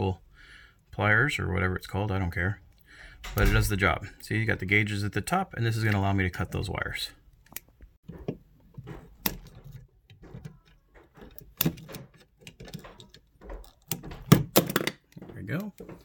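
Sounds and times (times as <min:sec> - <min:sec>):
wires rattling: 0:05.7 - 0:16.0.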